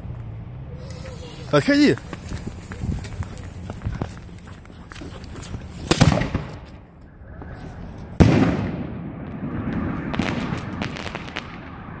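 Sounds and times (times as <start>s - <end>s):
firework crackles: 0.7s - 4.4s, 7.4s - 12.0s.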